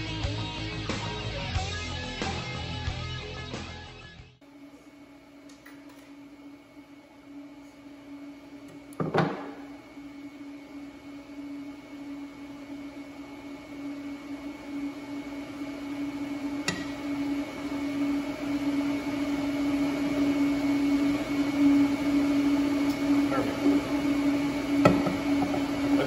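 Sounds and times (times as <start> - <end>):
machine hum: 4.4 - 26.0
knock on metal workbench: 24.8 - 25.6.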